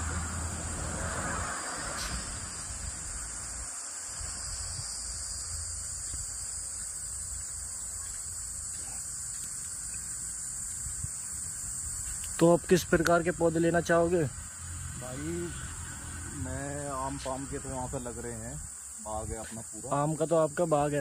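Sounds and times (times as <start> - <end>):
low rumble: 0.0 - 3.5
high-pitched insect chorus: 0.0 - 21.0.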